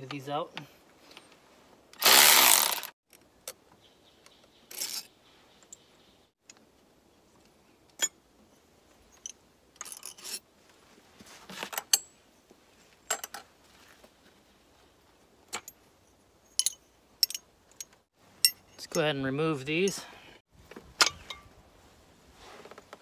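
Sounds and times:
small bolts rattling: 15.5 - 19.0.

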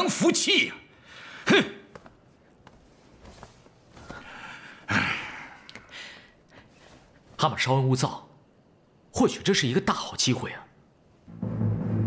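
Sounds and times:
faint breaths: 3.2 - 7.4.

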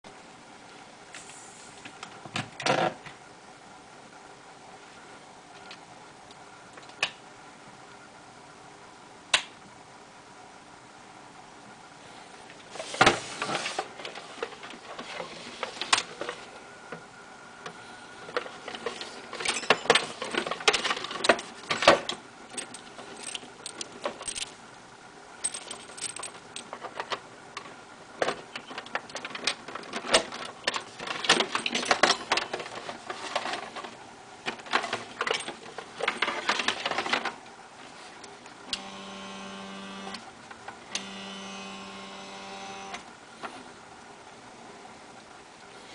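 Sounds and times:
clicking and rattling: 18.3 - 24.6, 25.4 - 37.4
electric motor whine: 38.7 - 40.3, 40.9 - 43.1.

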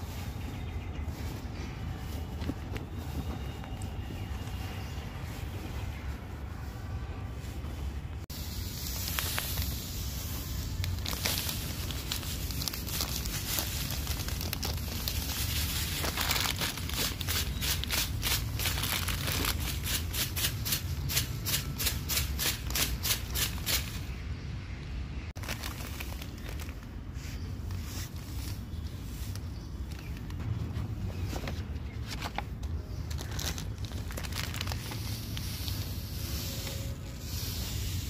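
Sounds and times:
granules shaken onto soil: 8.7 - 24.0
plastic packet crinkling: 8.8 - 19.9, 25.4 - 27.0, 33.0 - 36.1.

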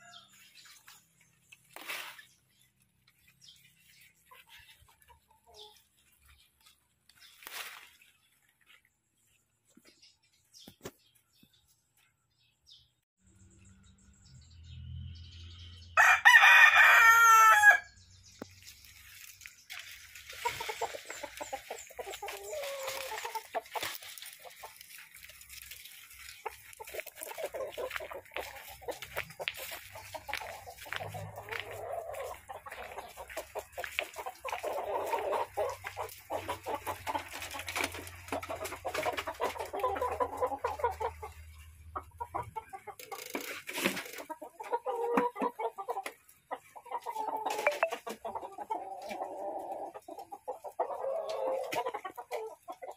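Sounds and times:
chickens clucking: 0.0 - 11.4, 18.1 - 52.9
rooster crowing: 16.0 - 18.0.

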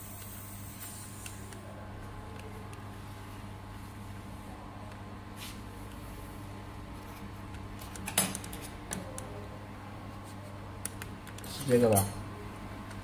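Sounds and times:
welding machine hum: 0.0 - 9.8.

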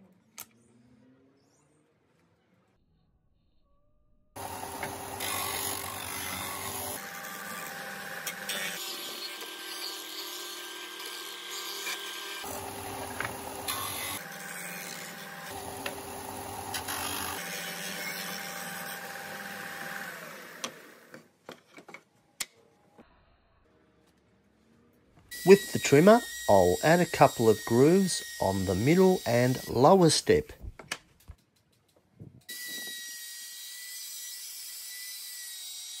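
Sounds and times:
sander motor hum: 4.4 - 21.2.

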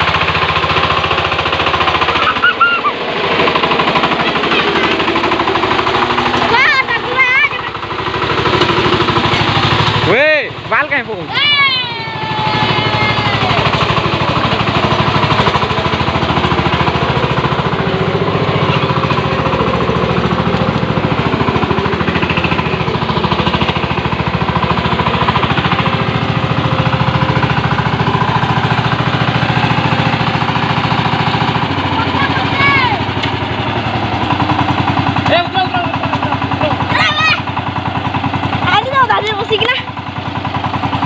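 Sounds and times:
tractor engine pounding: 0.0 - 41.0.

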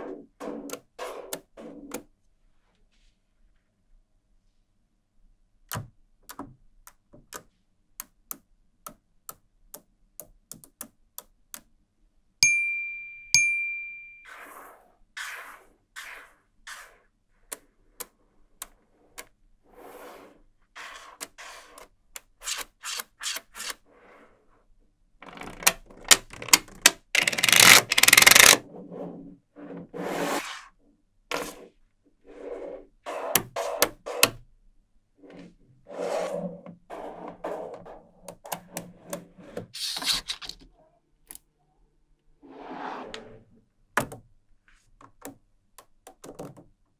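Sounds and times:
short ringing dings: 12.4 - 14.3
magnetic balls clicking together: 25.2 - 28.6
balls rattling and rolling: 25.2 - 28.7.

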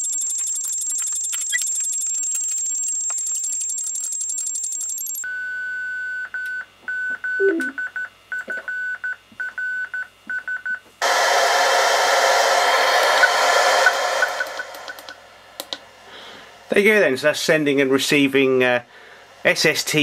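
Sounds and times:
radio receiver hiss: 11.0 - 15.4.

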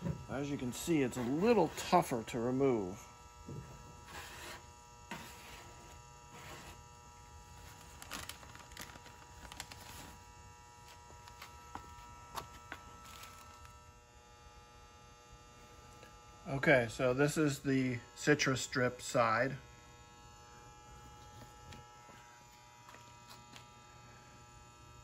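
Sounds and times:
electrical hum: 0.0 - 25.0
knife scraping paint off metal: 4.1 - 6.8.

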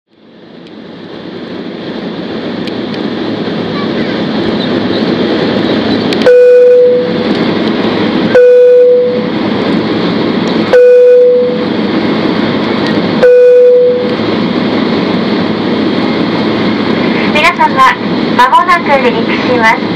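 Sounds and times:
jet engine cabin noise: 0.1 - 19.9
loud single-pitched beeps: 6.2 - 7.2, 8.3 - 9.3, 10.7 - 11.6, 13.2 - 14.1.

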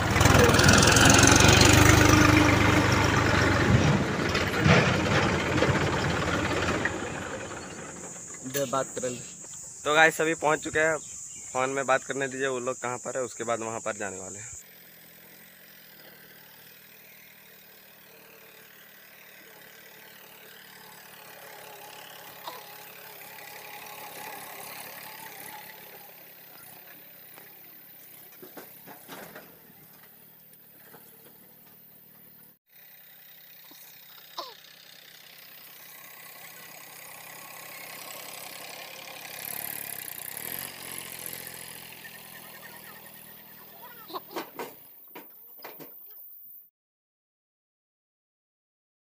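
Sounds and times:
tractor diesel engine running: 0.0 - 45.3
short clatters: 26.5 - 32.5.

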